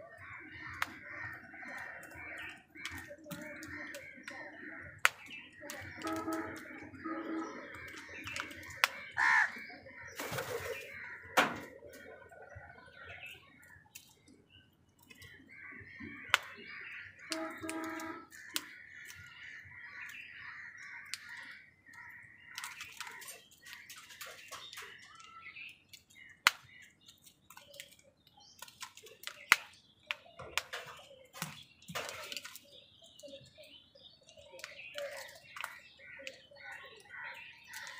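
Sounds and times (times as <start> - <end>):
high chatter of bird calls: 0.0 - 37.9
crows cawing: 0.1 - 12.5, 15.3 - 23.9
beaks pecking at food: 0.1 - 37.9.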